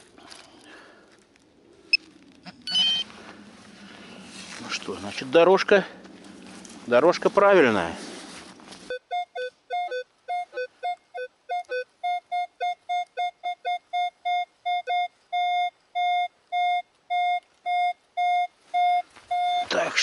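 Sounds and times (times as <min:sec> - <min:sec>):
metal detector beeping: 0:02.5 - 0:03.1, 0:08.9 - 0:20.0.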